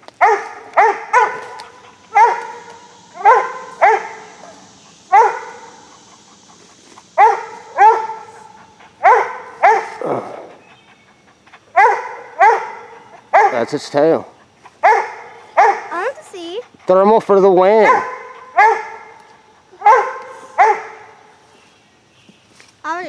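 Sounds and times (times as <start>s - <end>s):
dog barking sharply: 0.2s - 6.0s, 7.2s - 10.0s, 11.8s - 13.7s, 14.8s - 15.9s, 17.8s - 19.2s, 19.8s - 21.1s.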